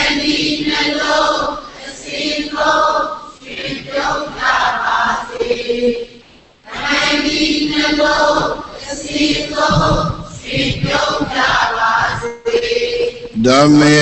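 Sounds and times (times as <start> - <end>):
voices chanting in unison: 0.0 - 13.9
man chanting: 13.4 - 14.0.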